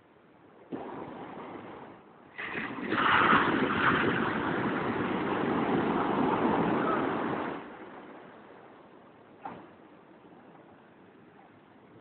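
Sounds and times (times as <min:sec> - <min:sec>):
waves breaking on beach: 0:00.7 - 0:10.0.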